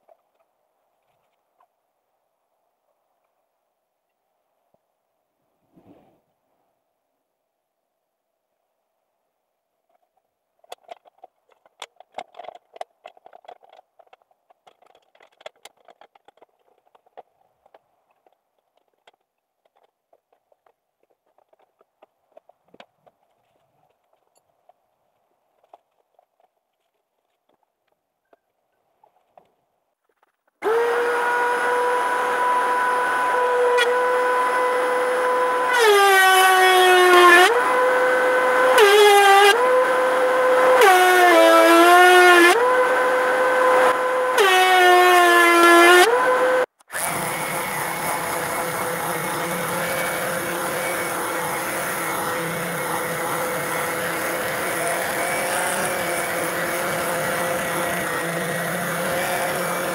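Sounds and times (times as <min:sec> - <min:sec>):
metal clamp clicks and rattles: 0:09.9 - 0:24.5
thickness planer whining: 0:30.6 - 0:59.9
planer knives cutting board: 0:43.5 - 0:59.9.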